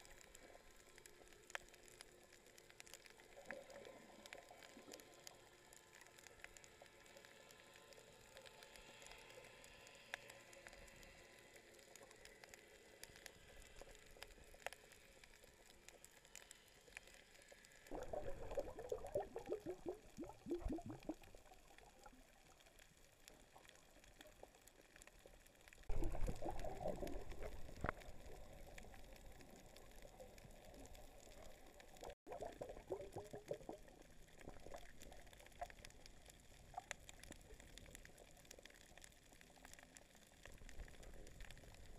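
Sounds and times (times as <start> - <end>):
water bubbling and gurgling: 17.8 - 41.9.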